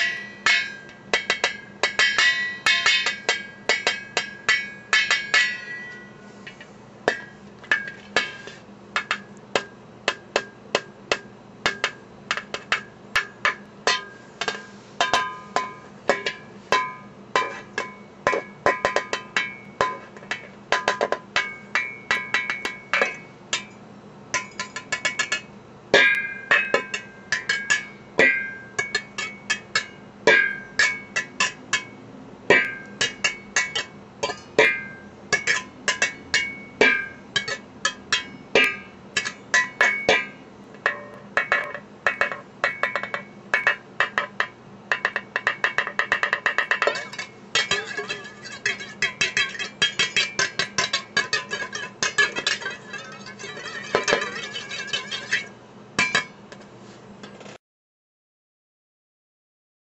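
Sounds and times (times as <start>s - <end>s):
whisk striking metal pot lid: 32.5s - 56.3s.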